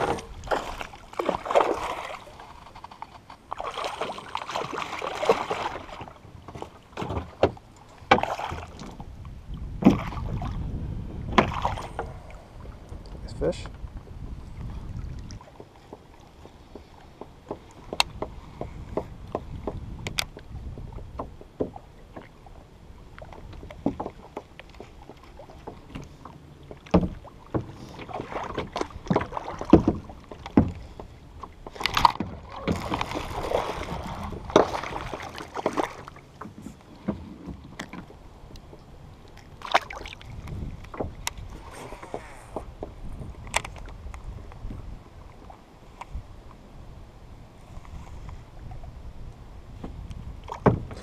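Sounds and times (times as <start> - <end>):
clicks and knocks of fishing gear: 0.0 - 4.2, 15.2 - 20.5, 31.7 - 33.1, 35.6 - 38.7, 39.6 - 44.6
water lapping against hull: 0.0 - 51.0.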